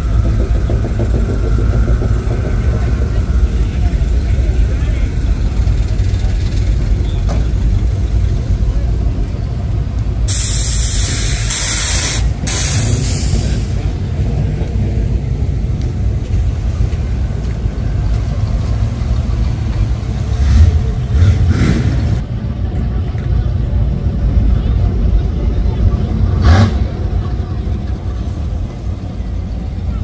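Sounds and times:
truck engines rumbling: 0.0s - 30.0s
loud hiss: 10.3s - 13.8s.

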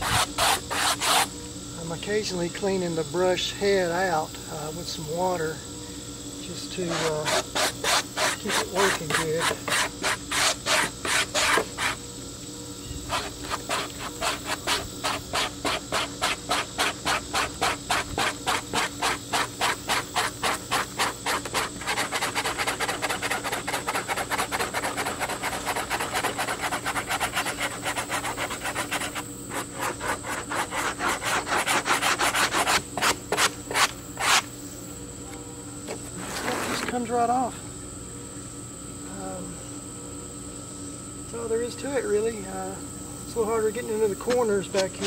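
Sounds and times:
steel brush scrubbing board: 0.0s - 1.3s, 6.9s - 12.0s, 13.1s - 34.4s.

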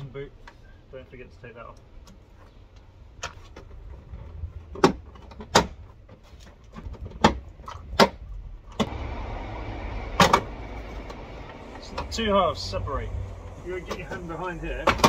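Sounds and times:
low rumble: 8.3s - 13.7s
rushing noise: 8.8s - 13.8s.

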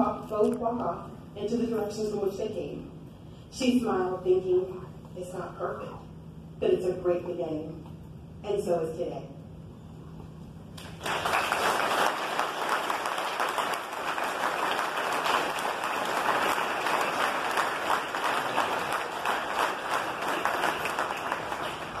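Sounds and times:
crowd applauding: 10.8s - 22.0s.

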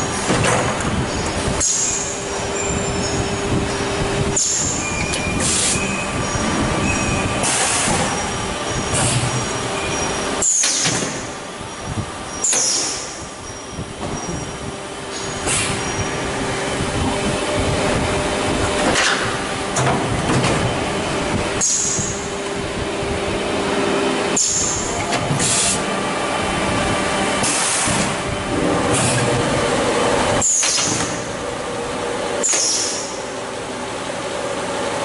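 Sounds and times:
machine mechanical din: 24.3s - 31.8s.

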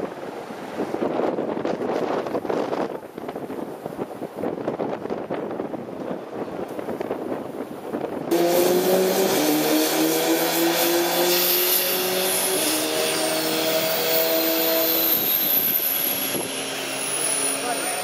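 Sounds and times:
wind noise on microphone: 0.0s - 17.8s
helicopter turbine whine: 8.3s - 18.0s.

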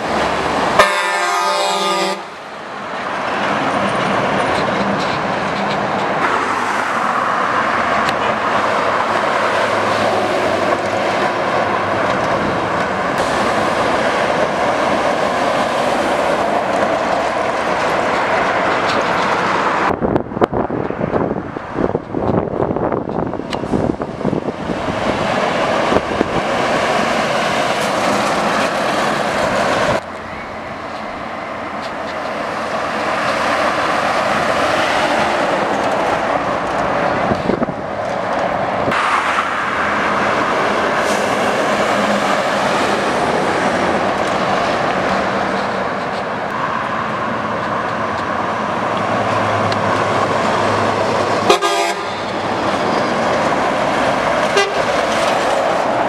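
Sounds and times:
diesel trucks driving past: 0.0s - 56.0s
truck horn toots: 0.8s - 2.4s, 51.4s - 52.3s, 54.5s - 54.9s.

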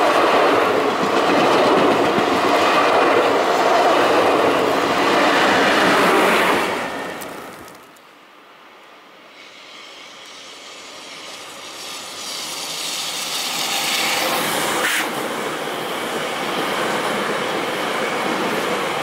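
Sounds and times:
train clack: 0.0s - 7.6s
electric train passing: 0.0s - 19.0s.

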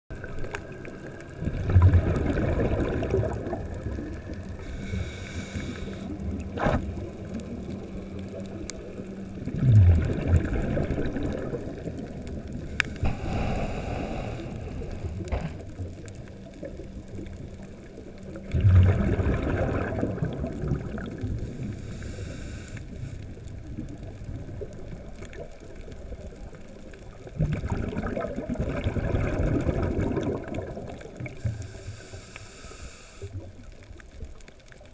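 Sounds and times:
exhaled bubbles gurgling: 0.1s - 32.4s
regulator inhale hiss: 4.5s - 6.4s, 12.6s - 15.8s, 21.3s - 23.4s, 31.3s - 33.5s.

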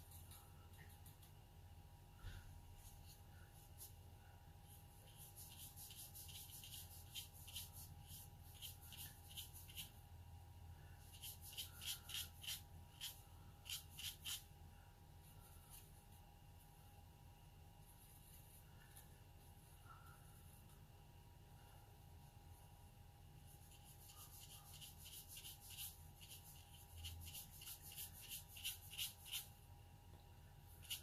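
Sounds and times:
brush strokes on paper: 2.2s - 10.0s, 10.8s - 14.6s, 17.8s - 20.8s, 23.4s - 29.6s, 30.8s - 31.0s.

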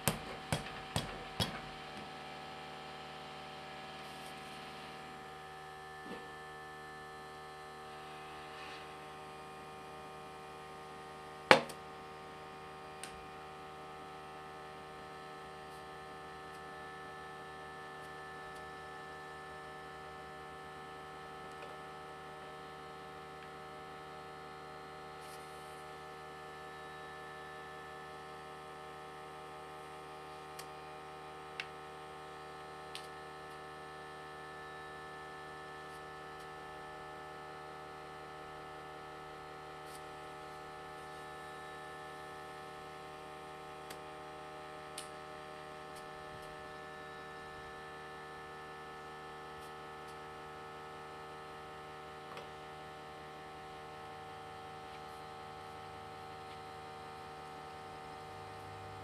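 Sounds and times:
electrical hum: 0.0s - 59.0s.

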